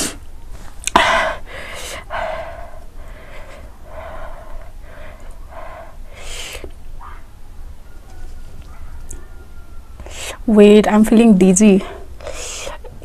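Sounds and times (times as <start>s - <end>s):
woman panting: 0.8s - 6.7s, 10.0s - 10.5s, 11.8s - 12.8s.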